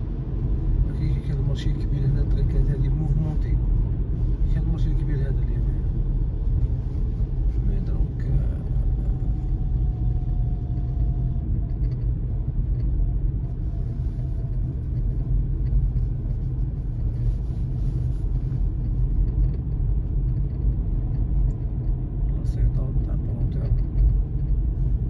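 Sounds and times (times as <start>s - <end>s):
car interior rumble: 0.0s - 25.0s.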